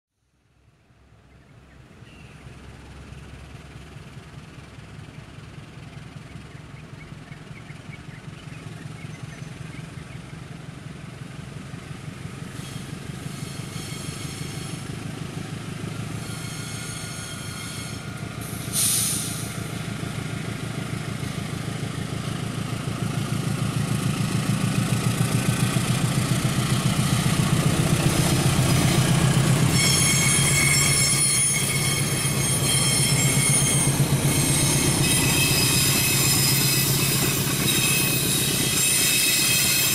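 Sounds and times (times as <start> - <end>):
diesel locomotive engine hum: 0.3 - 39.9
train wheels squealing on rails: 12.3 - 22.7, 25.1 - 39.9.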